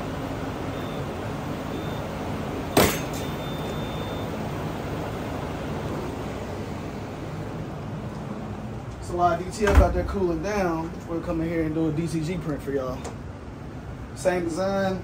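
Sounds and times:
long steady beep: 0.7 - 1.1, 1.7 - 4.4
short high beeps: 3.2 - 4.4.

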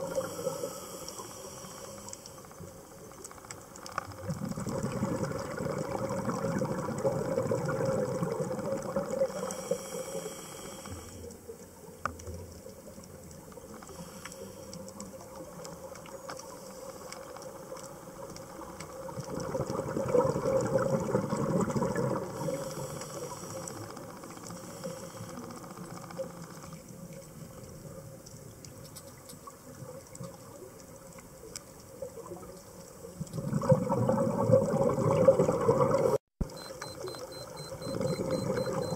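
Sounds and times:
regulator hiss: 0.0 - 2.7, 9.3 - 11.3, 22.3 - 25.8
exhaled bubbles underwater: 4.2 - 9.7, 18.1 - 25.0, 31.9 - 38.9.

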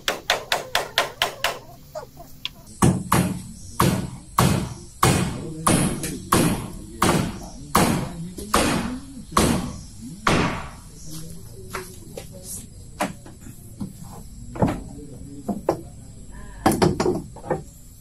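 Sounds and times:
hammer striking wood: 0.0 - 1.7, 2.8 - 10.8, 16.7 - 17.7.

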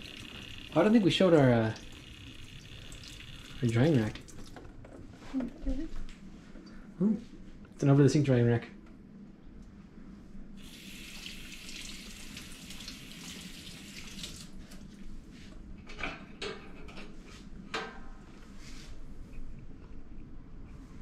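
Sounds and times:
faucet running into a metal sink: 0.0 - 4.6, 10.6 - 14.5.

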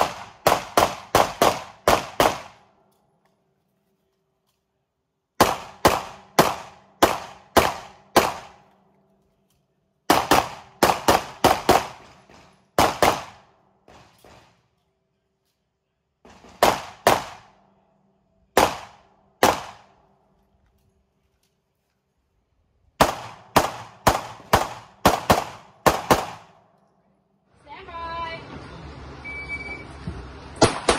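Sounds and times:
pistol shots: 0.0 - 2.6, 5.4 - 8.7, 10.1 - 14.5, 16.3 - 17.6, 18.6 - 20.0, 23.0 - 26.6, 30.6 - 30.9.

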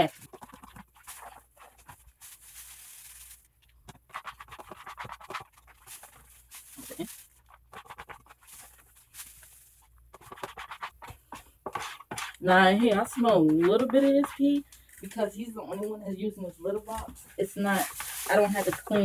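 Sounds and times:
scoop scraping through litter pellets: 0.8 - 3.5, 5.5 - 9.9, 16.8 - 19.0.

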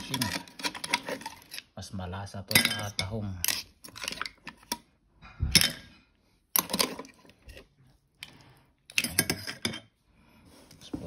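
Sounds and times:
metal spoon clinking on shells: 2.5 - 4.3.

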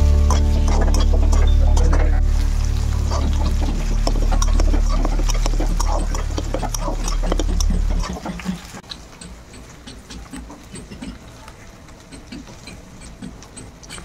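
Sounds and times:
low steady hum: 0.0 - 14.0
spatula stirring in a pan: 0.2 - 14.0
sauce bubbling and spattering: 2.2 - 8.8.

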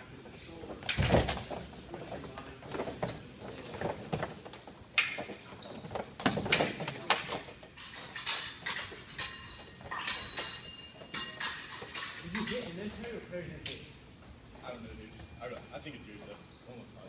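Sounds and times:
sneakers squeaking and thudding: 1.0 - 4.5, 5.1 - 7.3.

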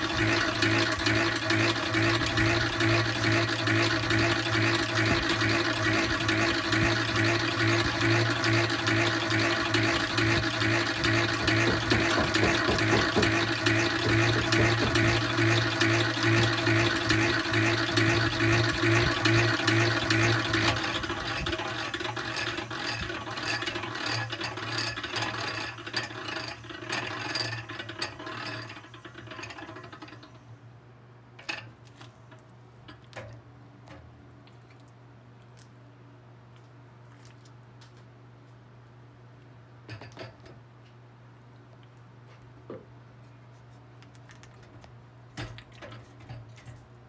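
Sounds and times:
honey extractor whirring and rattling: 0.0 - 30.5, 31.4 - 34.1
sharp clicks and knocks: 11.0 - 15.3.

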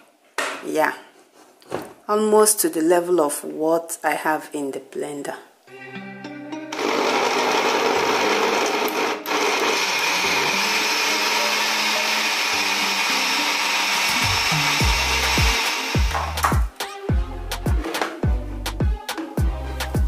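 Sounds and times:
blender running at high speed: 6.7 - 16.4
music with deep beat: 14.2 - 20.0.

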